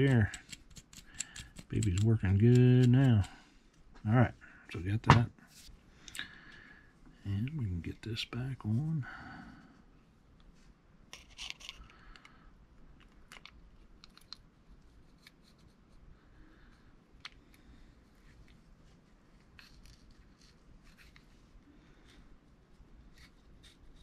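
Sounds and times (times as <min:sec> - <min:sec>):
small reel parts clicking and scraping: 0:00.0 - 0:03.4, 0:11.1 - 0:12.3, 0:19.4 - 0:21.3.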